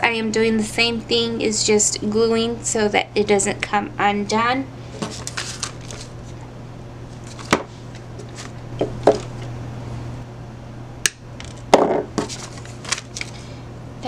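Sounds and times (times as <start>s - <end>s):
steady low hum: 0.0s - 14.0s
leaves rustling: 5.1s - 6.3s.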